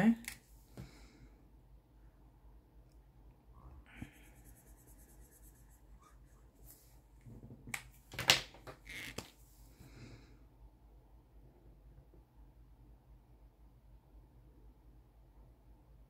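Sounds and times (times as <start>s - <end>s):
marker scribbling on paper: 4.0s - 6.9s.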